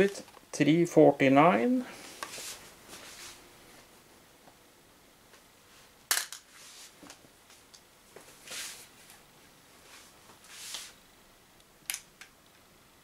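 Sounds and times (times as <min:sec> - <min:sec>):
soft rustles: 0:01.9 - 0:03.9, 0:05.7 - 0:11.0.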